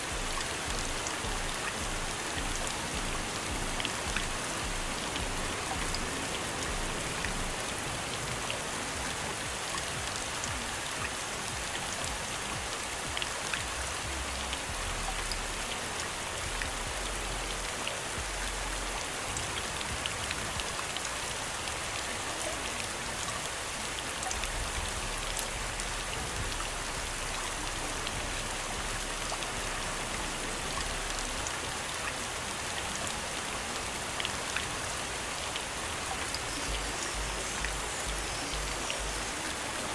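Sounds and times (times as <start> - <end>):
rain hissing: 0.0 - 21.4, 23.8 - 39.9
raindrops tapping: 0.1 - 7.6, 36.1 - 39.6.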